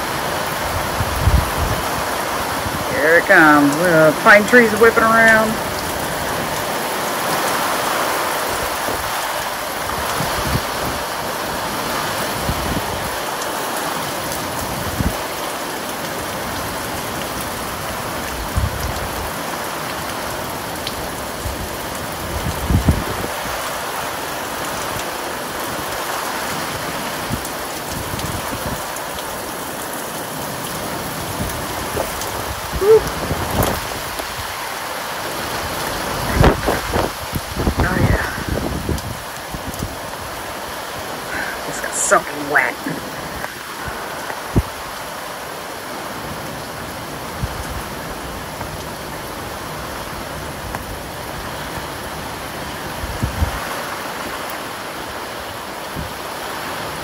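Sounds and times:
wind gusting: 0.0 - 4.3, 30.6 - 41.8
heavy rain hissing: 0.0 - 57.0.

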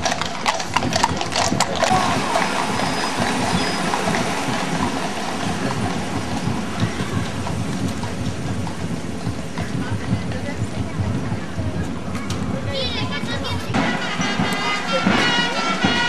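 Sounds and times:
horse hooves clopping: 0.0 - 16.0
vehicles driving past: 0.0 - 16.0.

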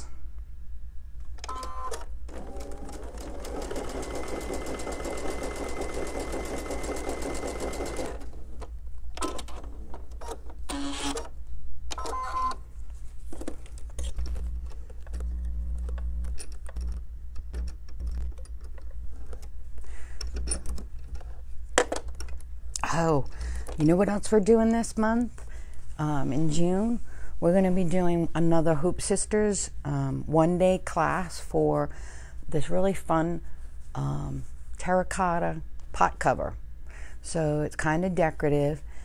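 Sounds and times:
sewing machine stitching: 1.5 - 8.5.

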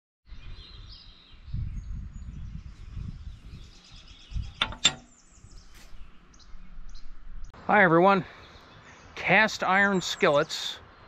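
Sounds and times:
birds chirping: 0.3 - 11.0
low uneven rumble: 4.4 - 7.5
sharp ringing knocks: 4.5 - 5.2.

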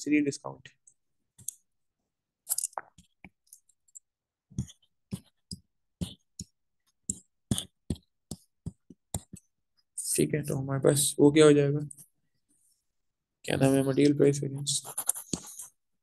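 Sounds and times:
digital pen tapping on tablet: 4.5 - 9.4.

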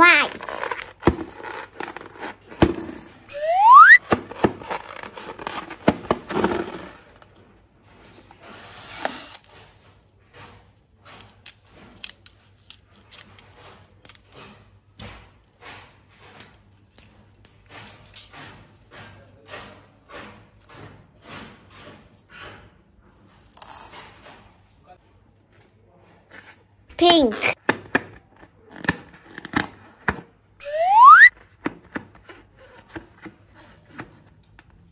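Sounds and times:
balloon squeal: 3.3 - 4.0, 30.6 - 31.3.

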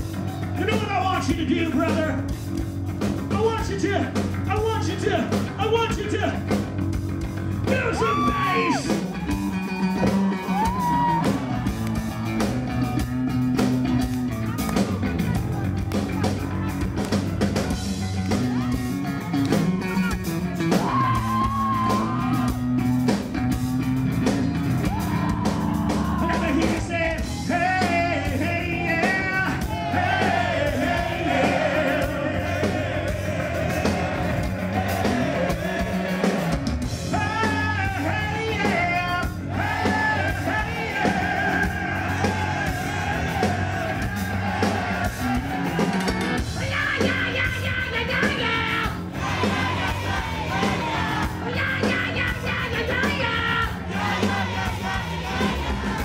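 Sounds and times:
drums: 0.0 - 56.0
electric bass: 0.0 - 56.0
person singing and yelling: 7.6 - 9.0, 46.6 - 55.2.

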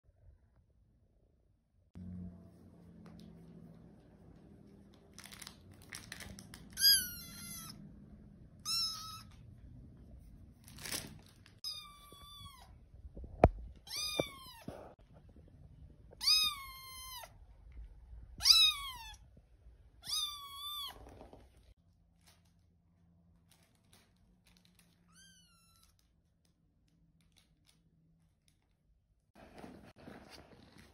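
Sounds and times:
kitten meowing: 6.8 - 7.8, 8.6 - 9.4, 11.6 - 12.8, 13.8 - 14.7, 16.1 - 17.4, 18.4 - 19.2, 20.0 - 21.2.

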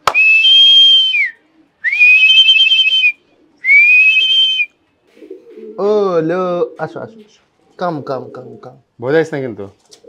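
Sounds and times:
long level whistles: 0.0 - 4.8.

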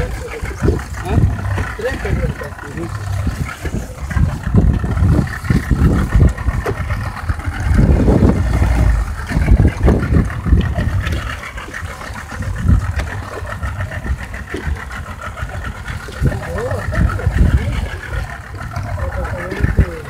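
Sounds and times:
outboard motor running: 0.0 - 20.0
wind buffeting microphone: 0.0 - 20.0.

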